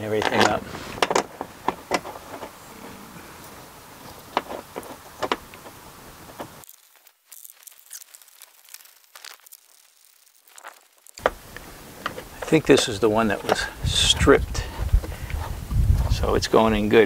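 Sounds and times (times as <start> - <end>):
plastic panel being handled: 0.0 - 2.9, 4.0 - 6.6
steady background hiss: 0.0 - 17.0.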